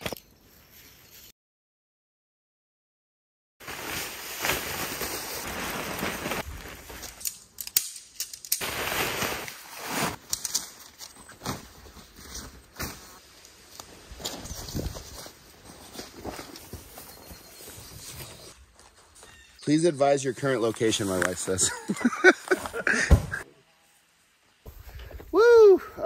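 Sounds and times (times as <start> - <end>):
tent fabric rustling and crinkling: 3.6 - 7.2, 8.6 - 19.5.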